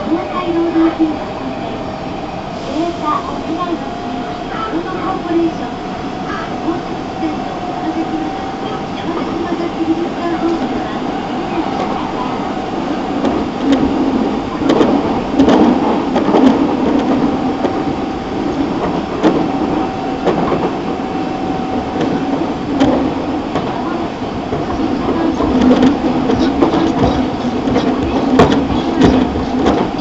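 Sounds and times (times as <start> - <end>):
wheels rumbling on rail: 0.0 - 30.0
wheels clacking over rail joints: 13.2 - 30.0.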